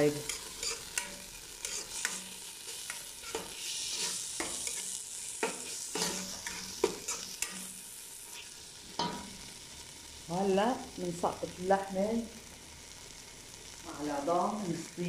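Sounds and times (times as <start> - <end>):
food sizzling in a pot: 0.0 - 15.0
metal spoon scraping a pot: 0.2 - 7.7.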